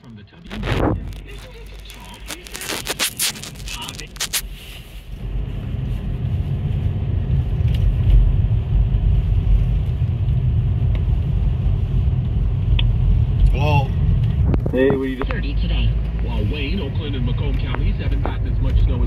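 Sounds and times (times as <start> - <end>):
car road rumble inside cabin: 0.0 - 19.0
sharp crackling clicks: 0.4 - 4.4.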